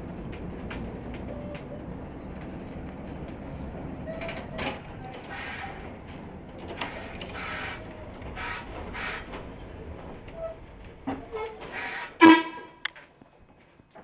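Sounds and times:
trolley car rumbling on track: 0.0s - 14.0s
hissing scraping bursts: 5.2s - 5.9s, 6.8s - 9.4s, 11.6s - 12.3s.

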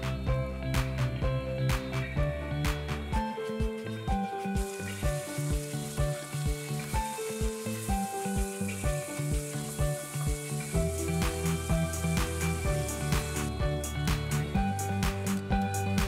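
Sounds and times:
background music with steady beat: 0.0s - 16.0s
prawns sizzling in a frying pan: 4.3s - 15.4s.

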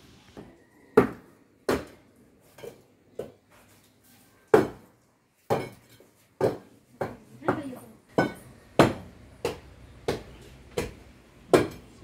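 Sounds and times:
hard objects knocking: 5.5s - 11.9s.

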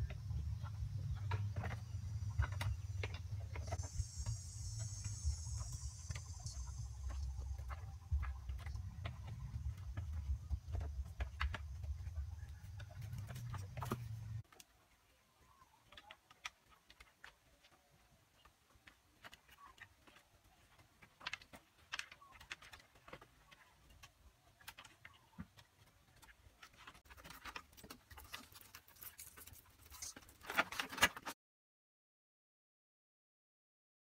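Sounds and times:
bamboo slats scraping and rattling: 5.6s - 14.5s, 26.0s - 31.4s.

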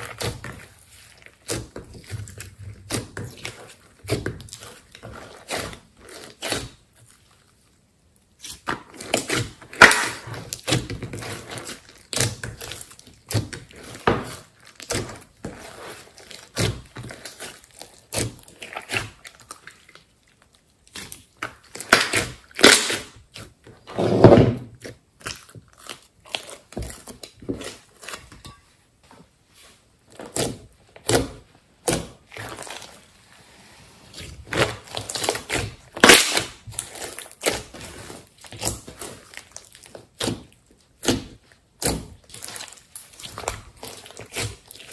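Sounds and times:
slime being squished by hand: 34.1s - 44.9s.

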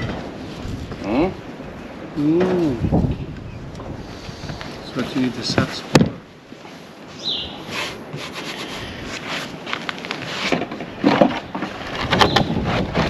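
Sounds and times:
rubbing and scraping on roof boards: 4.2s - 13.0s.

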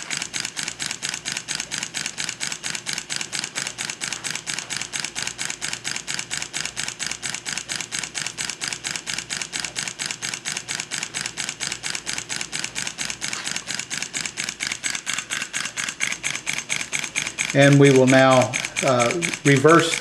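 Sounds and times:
valve gear clicking: 0.0s - 20.0s
steam engine exhaust chuffing: 6.4s - 20.0s.

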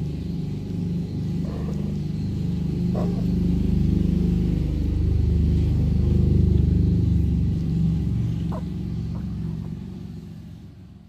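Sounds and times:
cat purring: 1.3s - 4.5s.

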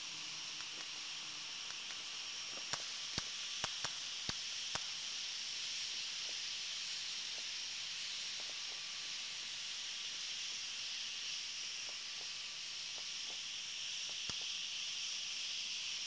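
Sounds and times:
steady high hiss: 0.0s - 16.0s.

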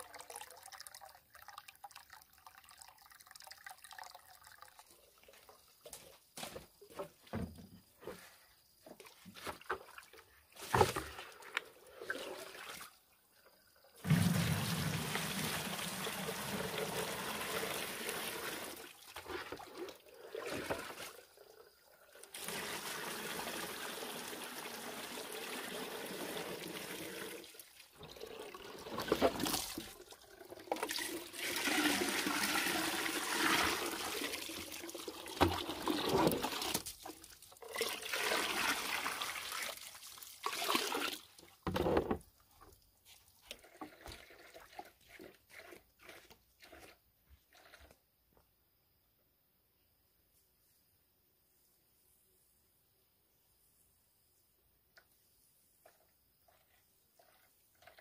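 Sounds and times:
water pouring into plastic containers: 0.0s - 6.0s, 9.1s - 48.0s, 56.5s - 58.0s.

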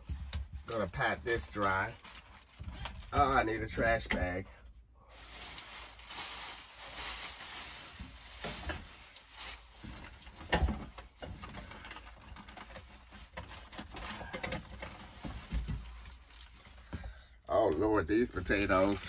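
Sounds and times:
plastic bag rustling: 0.8s - 4.0s, 5.0s - 17.0s, 18.1s - 19.0s.

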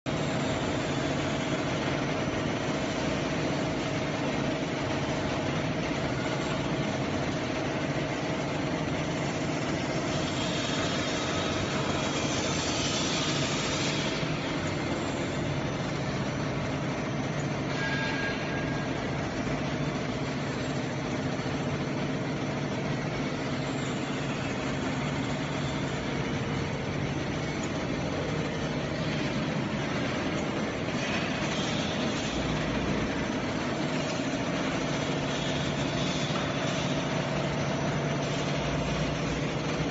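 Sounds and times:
mechanical drive hum: 18.8s - 39.9s.

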